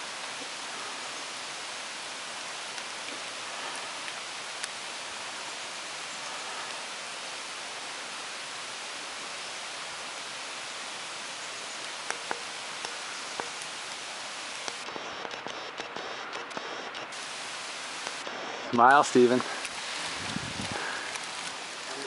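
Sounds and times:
steady rain hiss: 0:00.0 - 0:22.0
sharp ticks: 0:12.1 - 0:13.7.

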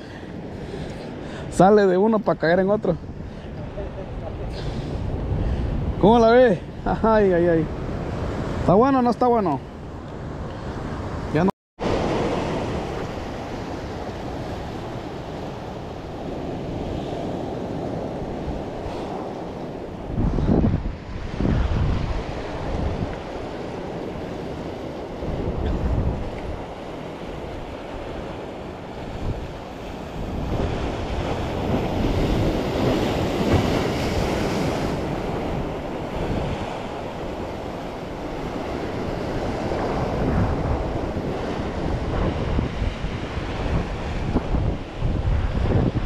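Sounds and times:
wind buffeting microphone: 0:02.8 - 0:08.7, 0:09.7 - 0:46.0
waves breaking against rocks: 0:11.9 - 0:46.0.

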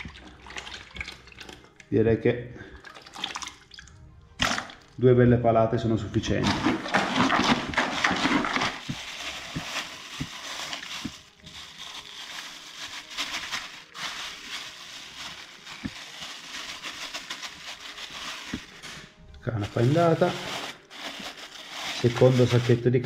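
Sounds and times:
plastic bag crinkling: 0:06.4 - 0:23.0.

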